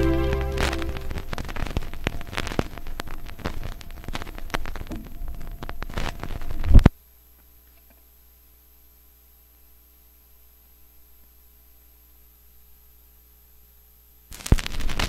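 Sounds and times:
vinyl clicks and pops: 14.3 - 15.0.

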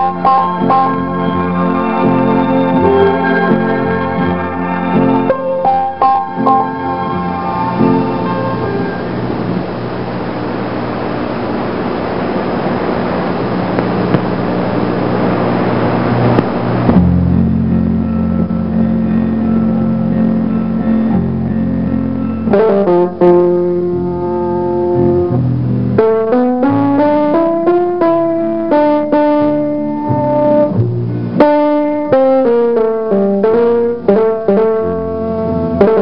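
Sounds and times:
melody of plucked notes: 0.0 - 10.2, 16.0 - 36.0
low held chord: 0.0 - 36.0.

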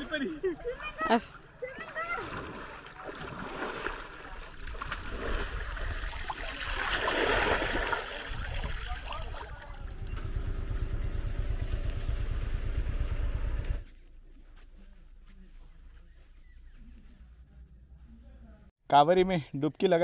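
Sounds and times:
river water splashing: 0.0 - 10.0
low steady rumble: 8.6 - 16.0.

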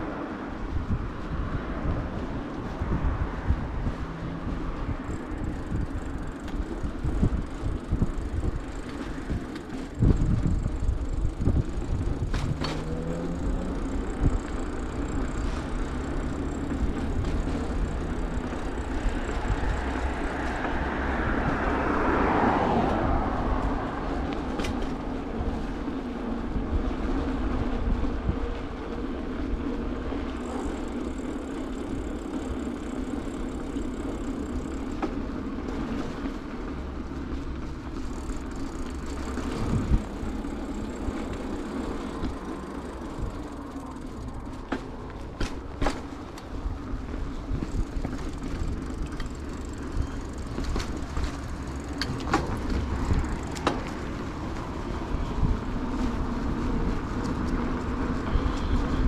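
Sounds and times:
bicycle tyres and frame rattling: 0.0 - 59.0
bicycle knocking over bumps: 3.8 - 20.8, 30.3 - 54.7
car passing by: 12.3 - 27.2.

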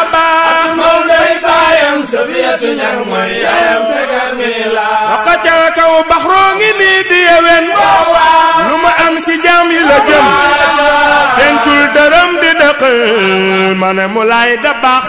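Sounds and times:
man chanting: 5.1 - 15.0.

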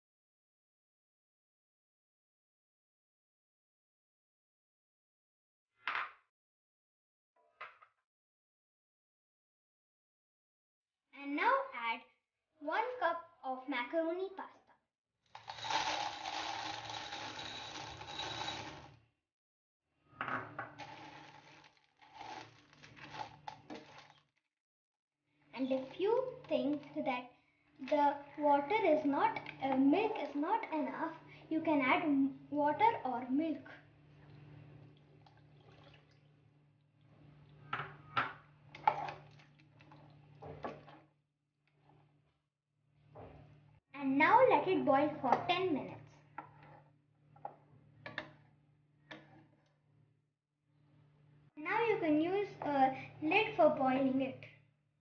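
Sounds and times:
dry pasta rattling into pan: 15.4 - 18.9, 20.8 - 24.2
milk pouring into pan: 35.0 - 36.2.

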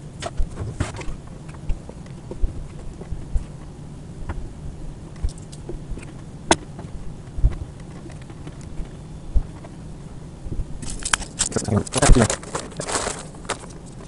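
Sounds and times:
steady low rumble: 0.0 - 14.0
clicks of plastic parts handled: 10.8 - 14.0.

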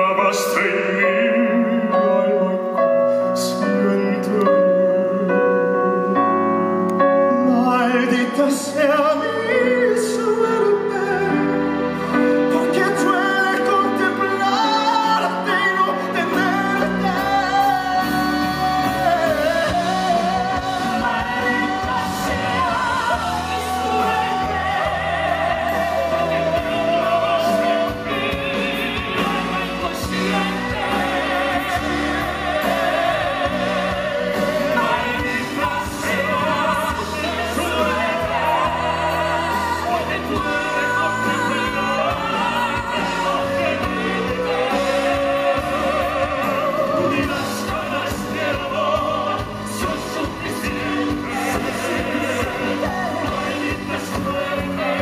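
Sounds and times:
men singing a ballad: 0.0 - 5.5, 7.3 - 55.0.

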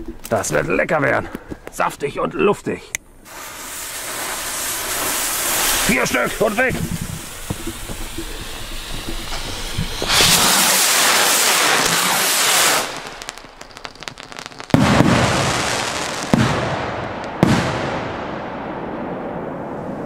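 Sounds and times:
firework rockets launching hiss: 3.2 - 18.5
firework crackles: 3.2 - 20.0
firework bangs echoing: 3.3 - 20.0.

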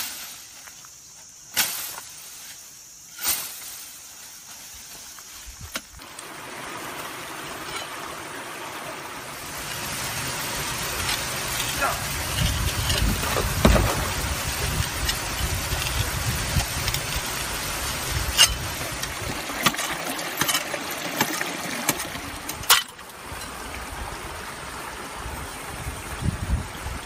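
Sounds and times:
waterfall rushing: 6.0 - 27.0.

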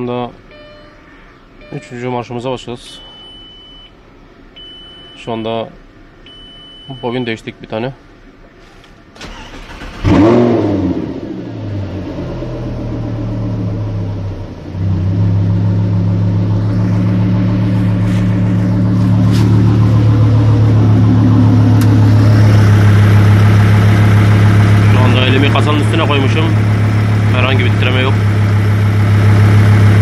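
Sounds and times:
car engine starting and idling: 8.1 - 30.0.

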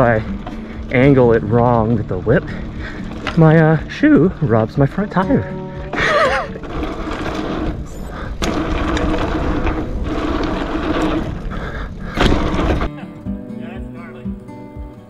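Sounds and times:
background music with held notes: 0.0 - 8.9, 11.4 - 15.0
bike tyres rolling over dirt: 0.0 - 13.0
bike landing thuds: 12.0 - 12.9.

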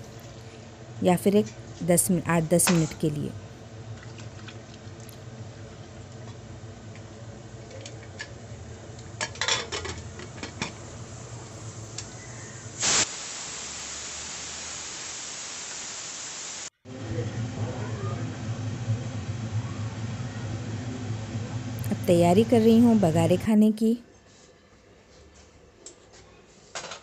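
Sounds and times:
low steady hum: 0.0 - 12.8, 16.9 - 25.0
steam hissing from pressure cooker: 11.2 - 16.7.

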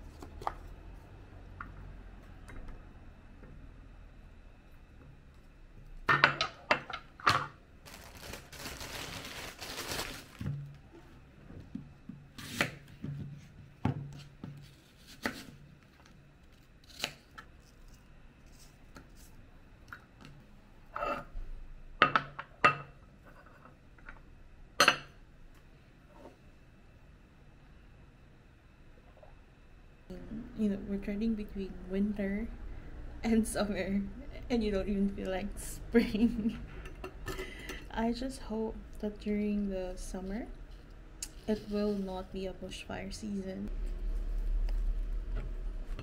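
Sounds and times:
rustling: 7.8 - 11.2.

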